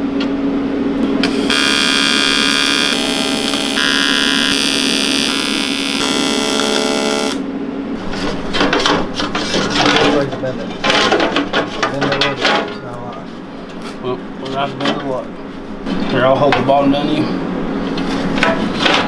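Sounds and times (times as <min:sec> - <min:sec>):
welding arc buzzing: 0:01.0 - 0:07.5.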